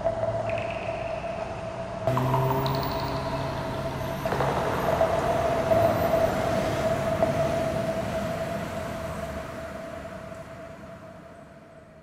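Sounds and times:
rumbling ambient texture: 0.0 - 11.0
sustained synth tone: 2.1 - 7.2.

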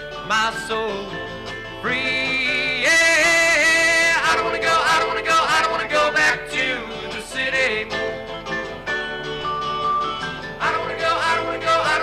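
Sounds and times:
acoustic guitar: 0.0 - 12.0
keyboard: 0.0 - 12.0.

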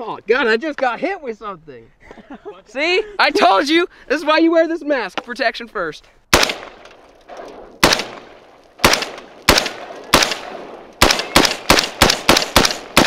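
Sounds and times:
rifle shots: 6.3 - 13.0.

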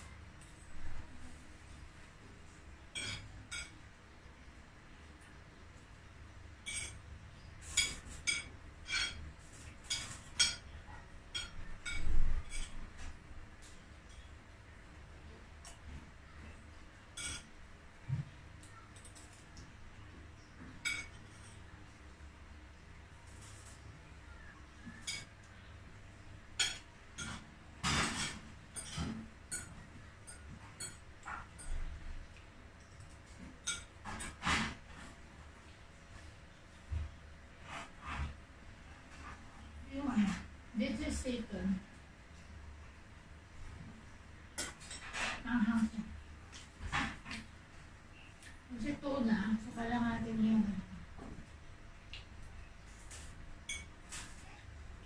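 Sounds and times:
cutlery clinking on plate: 2.9 - 3.8, 6.6 - 7.0, 7.6 - 10.7, 11.3 - 13.1, 17.1 - 17.6, 20.6 - 21.6, 26.6 - 32.0, 32.8 - 35.1, 44.6 - 45.4, 53.0 - 54.4.

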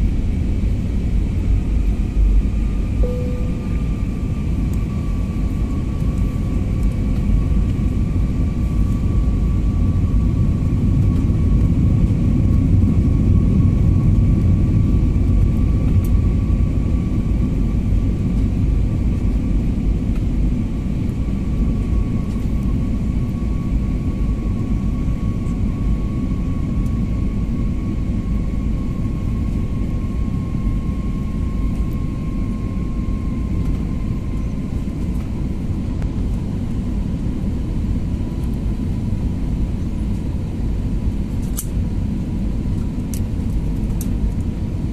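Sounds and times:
jet engine and airflow rumble: 0.0 - 44.9
faint high whine: 2.6 - 6.6.

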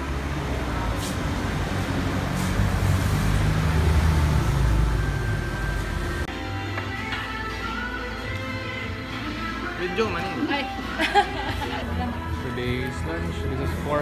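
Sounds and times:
vehicle passing: 0.0 - 6.2
road traffic rumble: 0.0 - 6.3.

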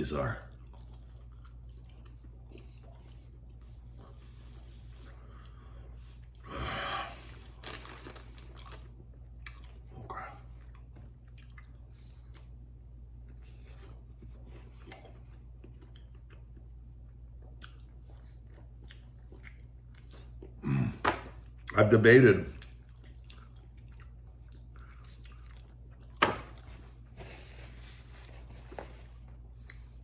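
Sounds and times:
man biting and chewing: 7.2 - 20.6, 29.0 - 30.0.

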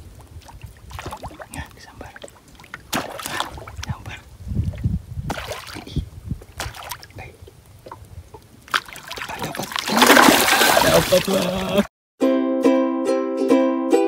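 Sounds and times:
small splashes on water: 0.2 - 4.1, 4.7 - 7.2, 7.8 - 11.6.

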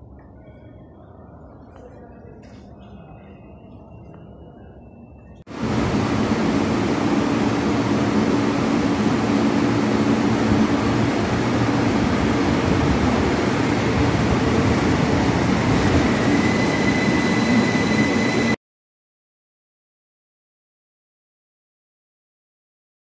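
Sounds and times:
train wheels and motors rumbling: 5.2 - 18.6
high steady whine: 5.4 - 18.6.

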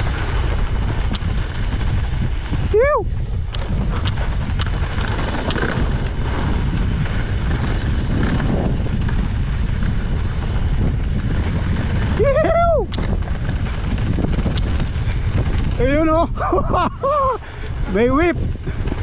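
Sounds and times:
bike tyres rumbling on dirt: 0.0 - 19.0
wind buffeting microphone: 0.0 - 19.0
person whooping: 12.2 - 12.9, 17.0 - 17.4.

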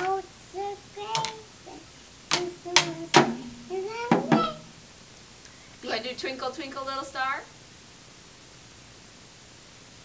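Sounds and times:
toy drum hits: 0.0 - 0.2, 1.1 - 1.4, 2.3 - 4.8
child's voice: 0.0 - 4.7.

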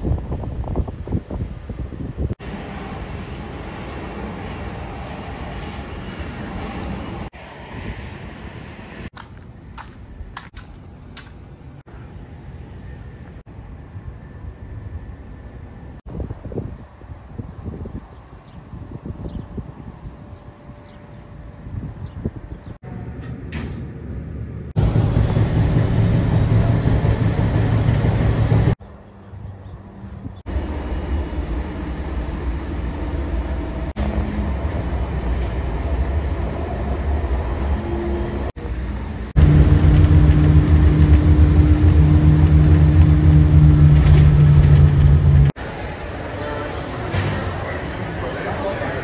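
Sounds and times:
light-rail train running: 0.0 - 49.0
road traffic: 0.0 - 49.0
steady droning tone: 39.4 - 47.7.

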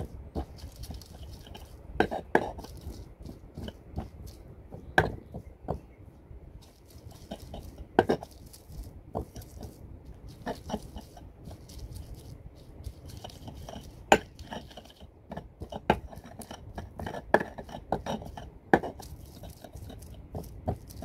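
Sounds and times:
pestle knocking stone mortar: 0.0 - 5.8, 7.2 - 8.4, 13.1 - 21.0
crunching and scraping: 0.0 - 5.9, 6.5 - 21.0.

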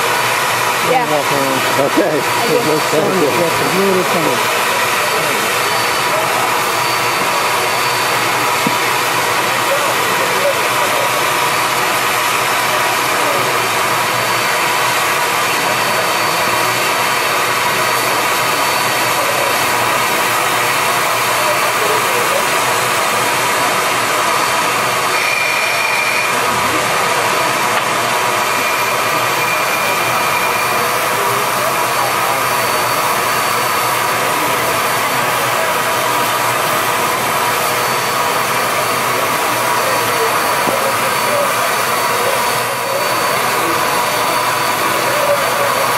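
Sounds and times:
steam locomotive hissing steam: 0.0 - 45.9.

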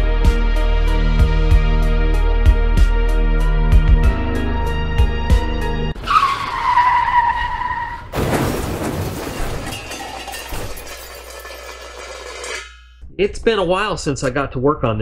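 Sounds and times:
background music: 0.0 - 6.0
tyre screech: 6.0 - 8.1
car crash with shattering glass: 6.0 - 12.8.

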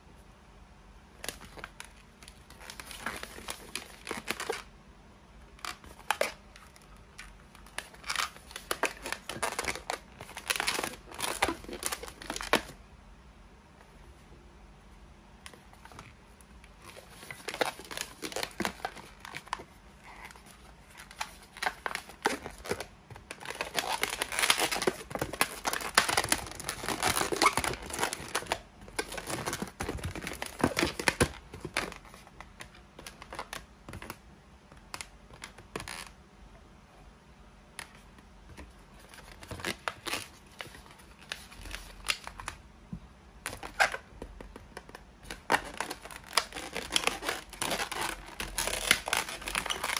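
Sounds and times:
balloons scraping and squeaking: 23.4 - 28.5, 45.6 - 49.9.

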